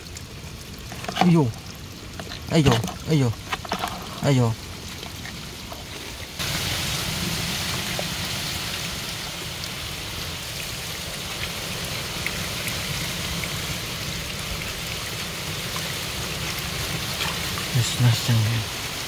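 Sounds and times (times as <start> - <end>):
water drips: 0.0 - 6.8
water splashing in rock pool: 0.0 - 19.0.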